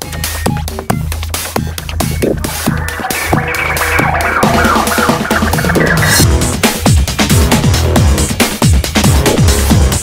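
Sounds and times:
electronic dance music: 0:01.6 - 0:07.1.

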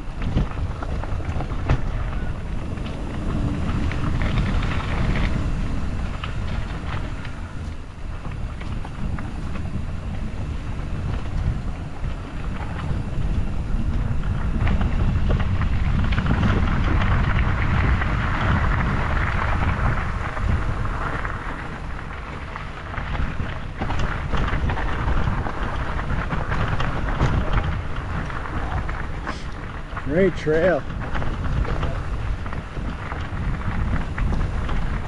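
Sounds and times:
bike clicks and rattles: 0:00.0 - 0:35.0
bike tyres rolling on trail: 0:00.0 - 0:35.0
wind buffeting microphone: 0:00.0 - 0:35.0.

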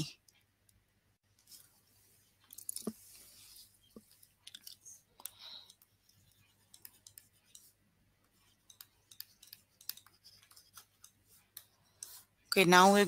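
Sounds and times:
faint clicks and taps: 0:03.8 - 0:12.8.

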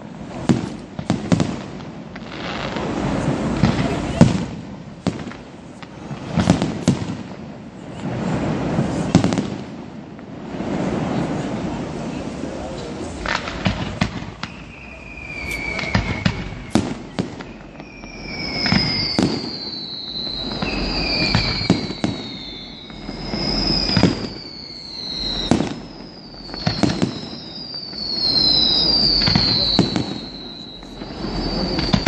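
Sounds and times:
firework shells bursting: 0:13.1 - 0:32.0
firework whistles falling in pitch: 0:13.1 - 0:32.0.

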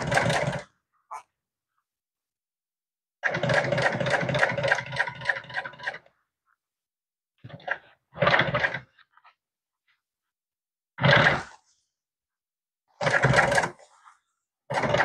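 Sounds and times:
industrial sewing machine stitching: 0:00.0 - 0:00.7, 0:03.2 - 0:06.1, 0:07.6 - 0:09.0, 0:11.0 - 0:11.6, 0:12.9 - 0:14.0, 0:14.7 - 0:15.0.

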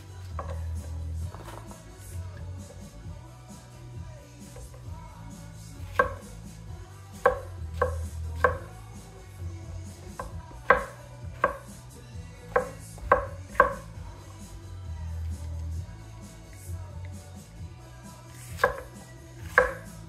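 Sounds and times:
knife knocking on cutting board: 0:05.9 - 0:06.2, 0:07.2 - 0:08.7, 0:10.2 - 0:11.7, 0:12.5 - 0:13.8.

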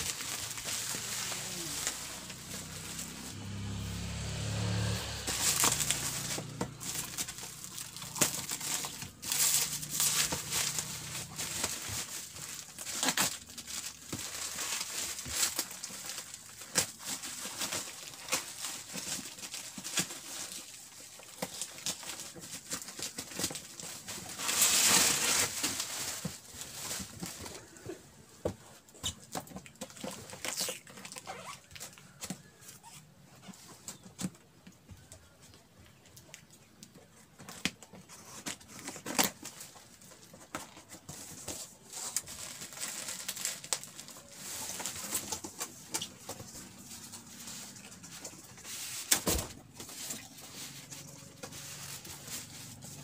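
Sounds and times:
bubble wrap crinkling: 0:00.0 - 0:28.0, 0:28.8 - 0:33.0, 0:35.8 - 0:53.0
plastic rustling: 0:00.0 - 0:53.0.

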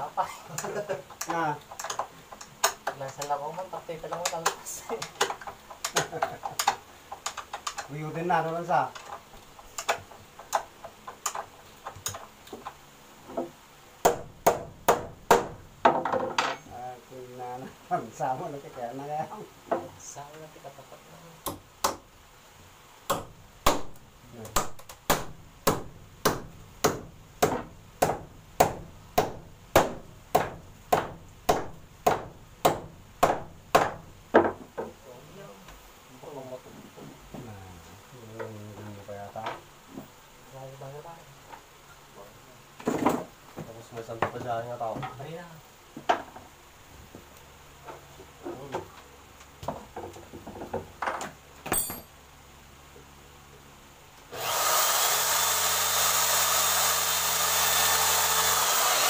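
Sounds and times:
hammer striking wooden cabinet: 0:13.4 - 0:16.3, 0:24.6 - 0:34.7
wooden cabinet knocking: 0:29.8 - 0:35.0
sharp clinking knock: 0:51.7 - 0:52.2.

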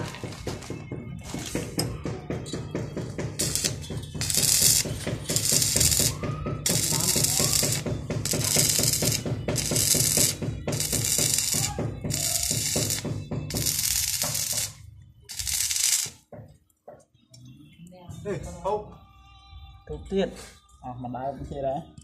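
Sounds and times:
welding arc crackling and hissing: 0:03.4 - 0:16.2.

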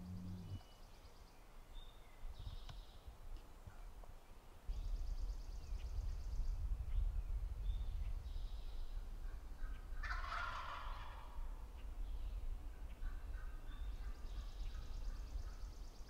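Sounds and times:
wild turkey gobbling: 0:09.6 - 0:11.6.

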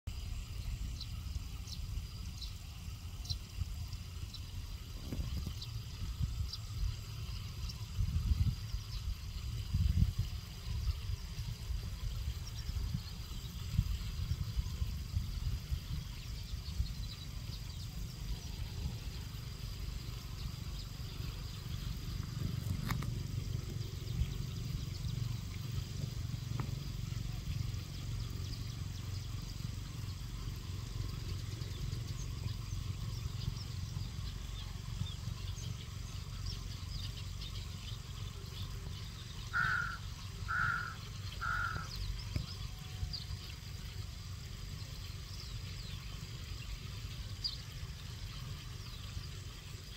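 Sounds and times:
steady low rumble: 0:00.1 - 0:49.9
crow cawing: 0:39.5 - 0:41.9.

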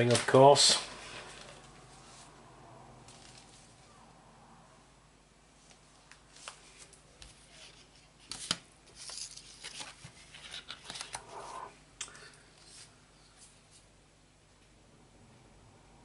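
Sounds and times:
card wrappers rustling: 0:06.3 - 0:11.4.

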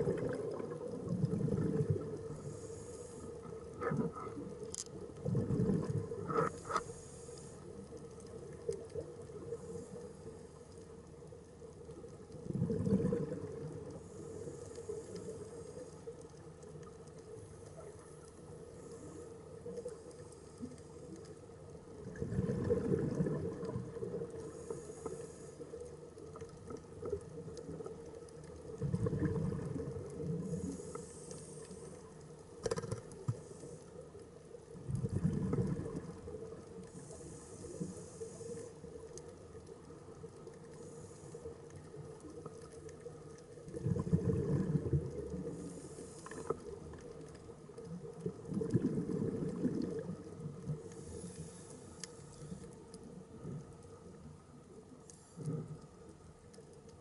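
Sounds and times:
exhaled bubbles rumbling underwater: 0:00.0 - 0:06.8, 0:11.1 - 0:14.4, 0:20.6 - 0:31.2, 0:34.4 - 0:40.7, 0:41.8 - 0:51.4
regulator inhalation hiss: 0:02.4 - 0:03.5, 0:37.0 - 0:38.9.

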